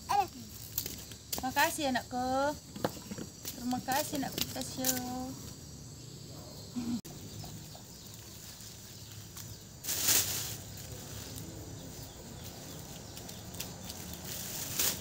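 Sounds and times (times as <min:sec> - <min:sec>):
stalks rustling in plastic sack: 0:08.0 - 0:15.0.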